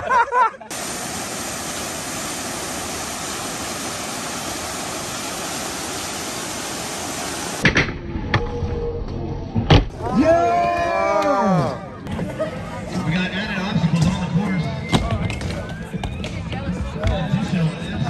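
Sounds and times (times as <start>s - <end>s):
waterfall rushing: 0.7s - 7.6s.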